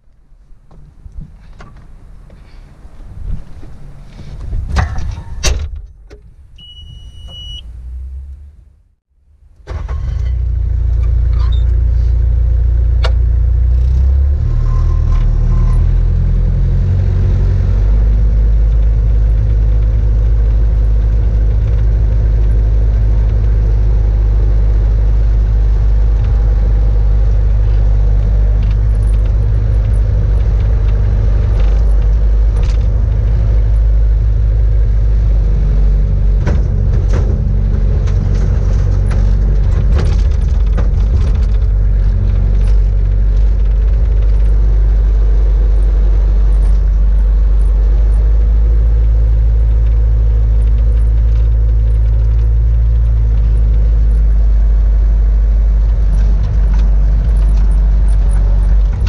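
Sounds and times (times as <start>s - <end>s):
sharp knocks and rattles: 3.3s - 6.4s, 17.3s - 59.0s
diesel engine running: 6.4s - 59.0s.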